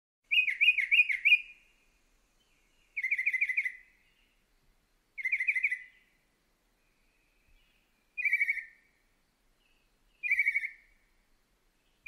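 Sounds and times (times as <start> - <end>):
mockingbird singing: 0.3 - 1.6, 2.8 - 4.3, 5.2 - 6.0, 8.2 - 8.8, 10.2 - 10.8.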